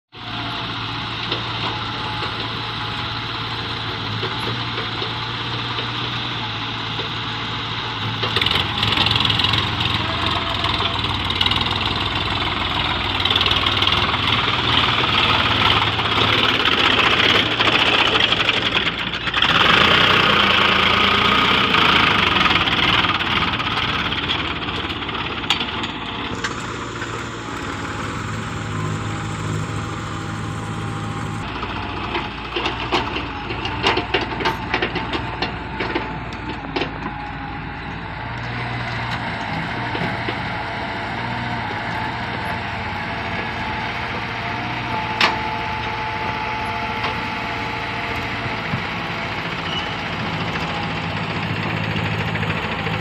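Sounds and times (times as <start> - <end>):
tractor diesel engine running: 0.2 - 53.0.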